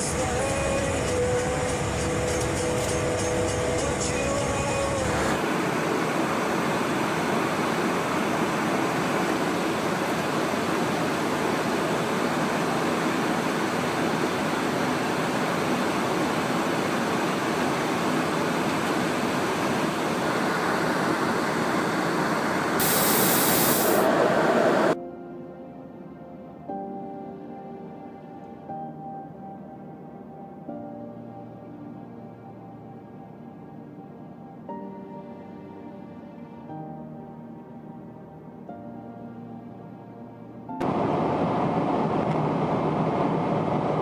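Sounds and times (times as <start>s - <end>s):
jet aircraft rushing noise: 0.7s - 25.0s, 40.8s - 44.0s.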